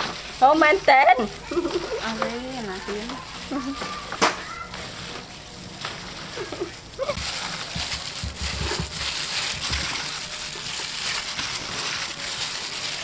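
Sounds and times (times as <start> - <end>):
wet sloshing of marinade: 0.0 - 13.0.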